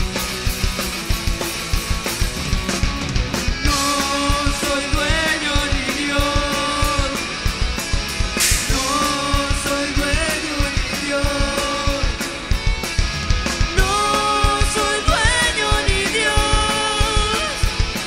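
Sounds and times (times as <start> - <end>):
rock band playing live: 0.0 - 18.0
cymbal crash: 8.3 - 9.0.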